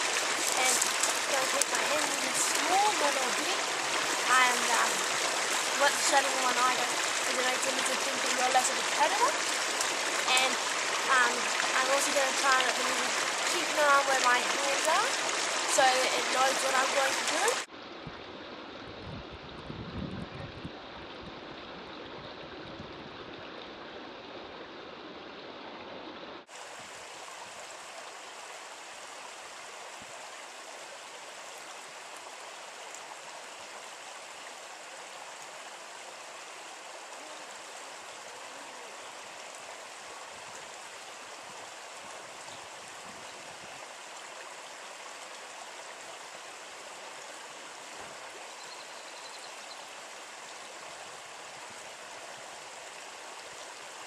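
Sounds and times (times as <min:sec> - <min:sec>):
running water rushing: 0:00.0 - 0:54.0
wind rumbling on microphone: 0:16.2 - 0:25.3, 0:41.4 - 0:43.8.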